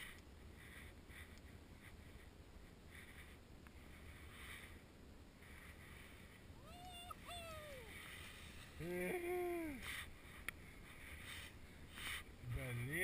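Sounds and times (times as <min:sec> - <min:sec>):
man whooping: 0:06.7 - 0:07.9, 0:08.8 - 0:09.8.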